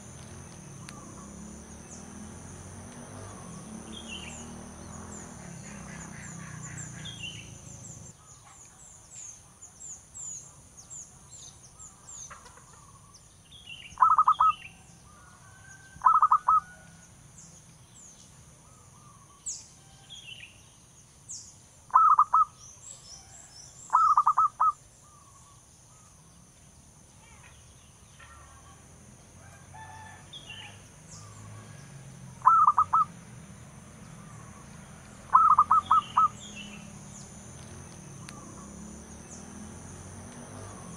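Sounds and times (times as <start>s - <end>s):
small birds chirping: 0.0s - 28.8s, 30.3s - 40.9s
dove cooing: 14.0s - 14.5s, 16.0s - 16.7s, 21.9s - 22.5s, 23.9s - 24.8s, 32.4s - 33.1s, 35.3s - 36.4s.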